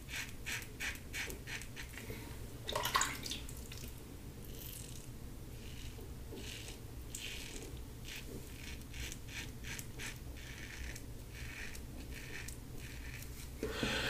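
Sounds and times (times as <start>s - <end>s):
razor scraping stubble: 0.0s - 2.0s, 4.5s - 13.7s.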